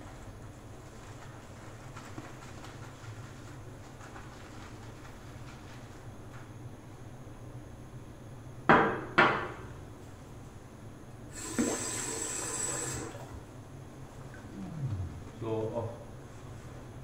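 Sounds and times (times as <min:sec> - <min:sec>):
sink tap running water: 0:11.3 - 0:13.3.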